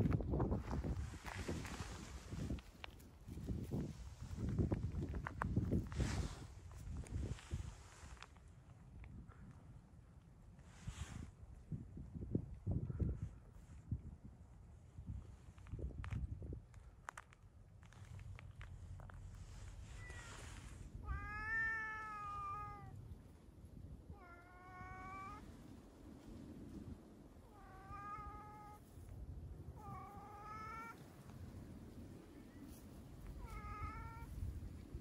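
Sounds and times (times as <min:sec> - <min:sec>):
cat meowing: 0:20.0 - 0:23.0, 0:24.1 - 0:25.5, 0:27.5 - 0:28.9, 0:29.8 - 0:31.0, 0:33.4 - 0:34.5.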